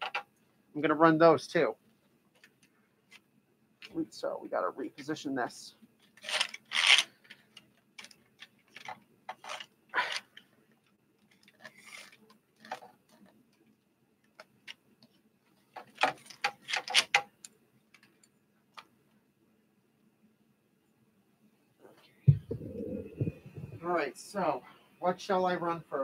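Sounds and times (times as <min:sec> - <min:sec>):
knocks and rubbing: 0:22.3 - 0:23.8
microphone handling noise: 0:22.3 - 0:23.9.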